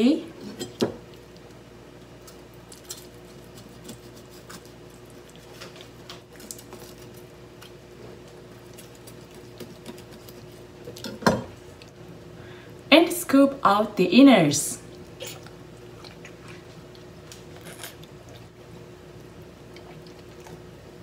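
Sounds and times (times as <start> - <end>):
steady low hum: 0.0 - 21.0
knife cutting fish skin: 3.4 - 4.7.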